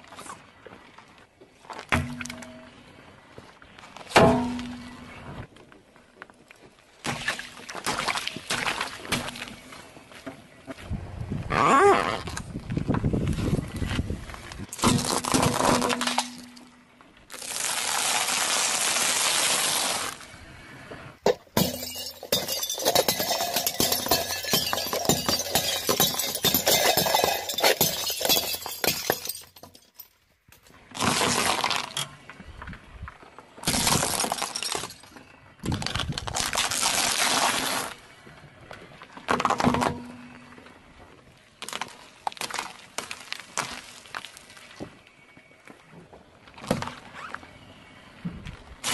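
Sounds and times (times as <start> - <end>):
plates shattering under tyre: 21.2 - 30.1, 33.6 - 35.2.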